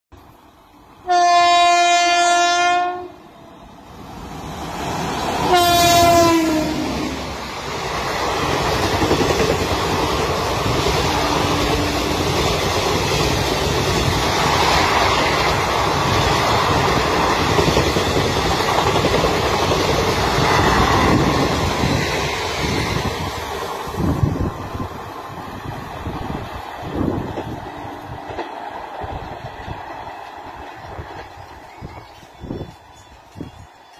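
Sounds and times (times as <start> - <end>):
train coaches rumbling past: 0.1 - 33.9
locomotive air horn blasts: 1.0 - 3.2, 5.4 - 7.2.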